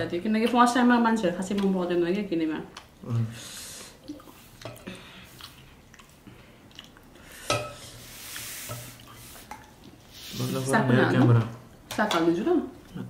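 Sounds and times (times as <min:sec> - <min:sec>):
chewing: 0:02.7 - 0:03.2, 0:03.8 - 0:07.3, 0:08.3 - 0:10.1.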